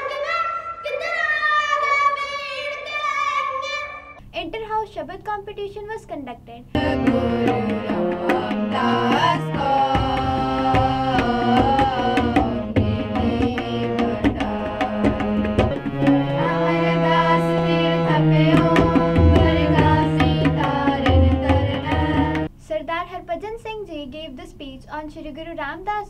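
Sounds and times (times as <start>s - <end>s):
group singing a hymn: 6.8s - 22.5s
harmonium: 6.8s - 22.5s
tabla strokes: 6.8s - 22.5s.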